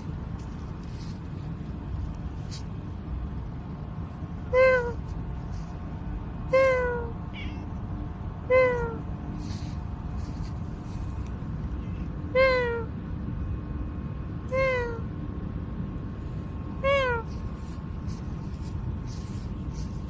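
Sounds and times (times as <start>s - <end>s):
low background noise: 0.0s - 20.0s
cat meowing: 4.5s - 5.0s, 6.5s - 7.8s, 8.4s - 9.1s, 11.8s - 12.9s, 14.5s - 15.1s, 16.8s - 17.5s.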